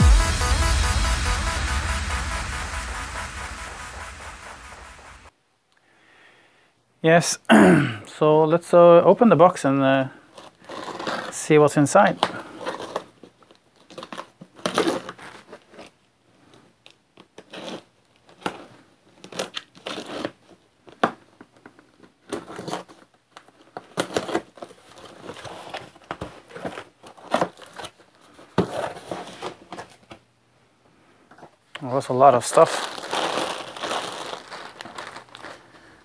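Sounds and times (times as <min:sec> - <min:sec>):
packing tape tearing: 0:10.3 - 0:11.4, 0:12.2 - 0:15.9, 0:17.2 - 0:21.1, 0:22.0 - 0:29.8, 0:32.5 - 0:36.0.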